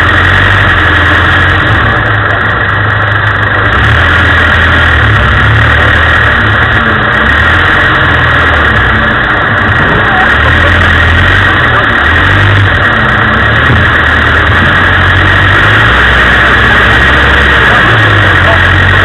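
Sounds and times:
engine running at low revs: 0.0s - 19.0s.

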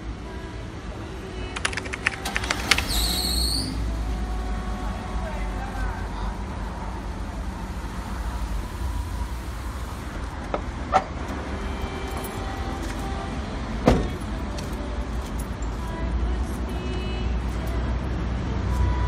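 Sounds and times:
van engine idling: 2.1s - 10.9s.

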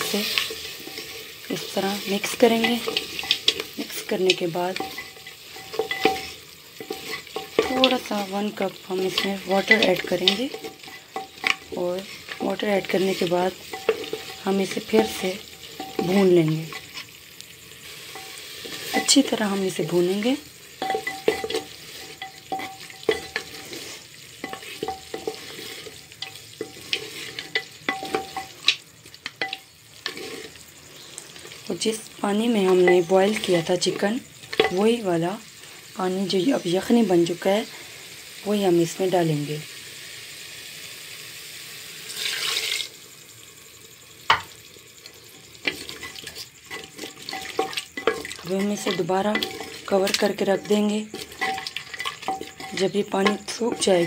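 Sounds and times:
spatula scraping: 0.0s - 17.2s, 17.8s - 31.8s, 45.5s - 54.0s
masala sizzling in a pot: 0.0s - 54.0s
hissing as liquid is poured: 39.6s - 48.3s.

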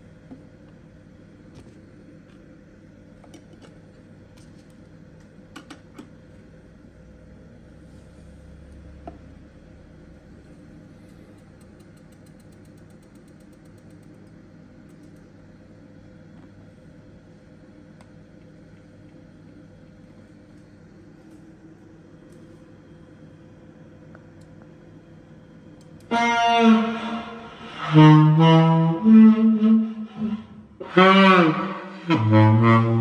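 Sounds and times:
low electrical hum: 0.0s - 33.0s
clicks and light taps: 11.1s - 15.3s.

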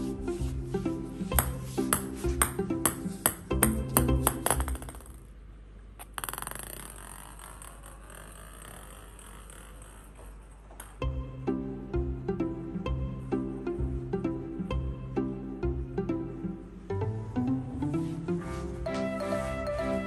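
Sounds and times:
plucked string music: 0.0s - 4.8s, 11.0s - 20.0s
ball rolling across floor: 0.0s - 5.4s, 6.0s - 11.2s, 17.1s - 20.0s
ping-pong ball bouncing on wood: 1.3s - 5.3s, 6.0s - 8.0s.

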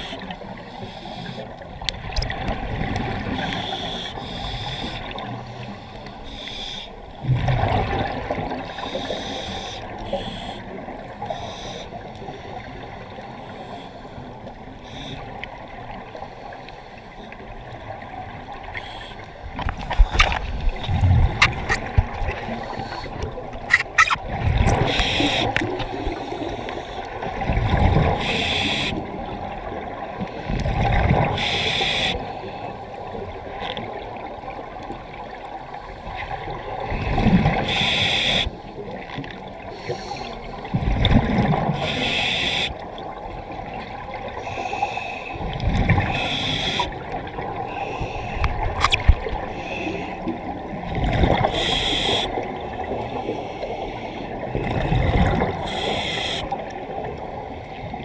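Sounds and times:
diver breathing through regulator: 0.0s - 1.6s, 3.2s - 7.4s, 8.6s - 12.6s, 18.7s - 27.2s, 28.1s - 29.1s, 31.3s - 32.9s, 36.9s - 38.8s, 39.7s - 40.8s, 41.7s - 42.9s, 44.4s - 50.3s, 51.3s - 54.4s, 55.5s - 56.6s.

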